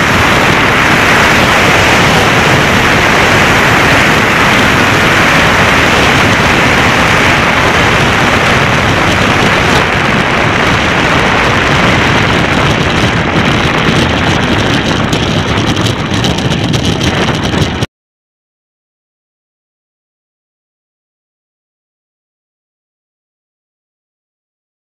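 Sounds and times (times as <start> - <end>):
sled runners roaring on ice: 0.0 - 17.9
wind on microphone: 0.0 - 17.9
rattling: 12.6 - 17.9.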